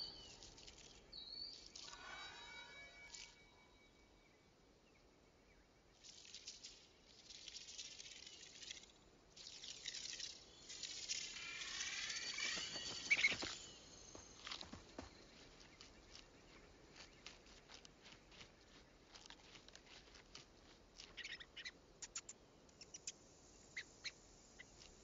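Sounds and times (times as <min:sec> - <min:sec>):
rattlesnake rattling: 0:06.0 - 0:16.2.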